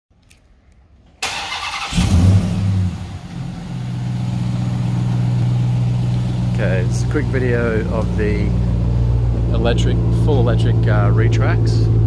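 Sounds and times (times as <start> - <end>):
engine cranking and starting: 1.2 - 3.1
engine idling: 1.2 - 12.0.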